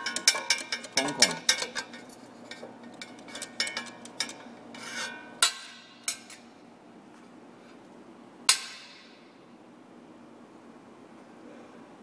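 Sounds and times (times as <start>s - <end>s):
steel rod scraping: 0.0s - 5.4s
metal clanks: 0.0s - 6.4s
steel rod clicking on metal: 0.0s - 6.4s.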